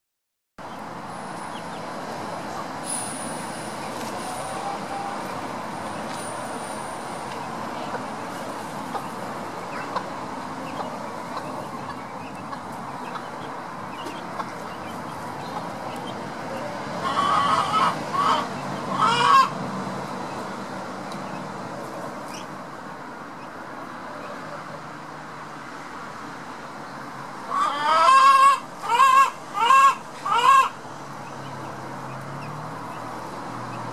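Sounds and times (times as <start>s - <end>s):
steady background noise: 0.6s - 33.9s
chickens calling: 3.8s - 6.2s, 7.2s - 20.5s, 21.1s - 22.6s, 27.4s - 33.9s.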